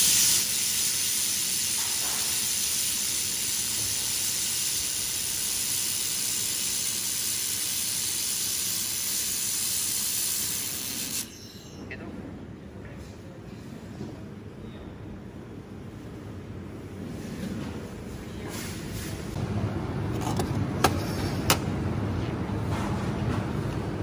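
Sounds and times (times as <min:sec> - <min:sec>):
laser welder hissing: 0:00.0 - 0:11.3.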